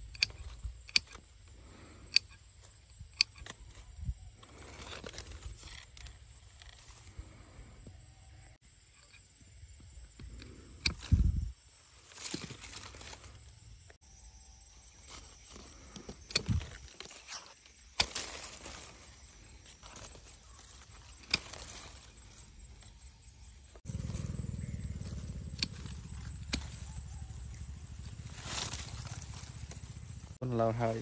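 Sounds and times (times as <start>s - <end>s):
pruning shears snipping branches: 0.0s - 1.3s, 2.1s - 3.9s, 15.9s - 22.2s, 25.0s - 29.8s
leaves and twigs rustling: 0.0s - 7.6s, 10.1s - 14.0s, 14.7s - 30.4s.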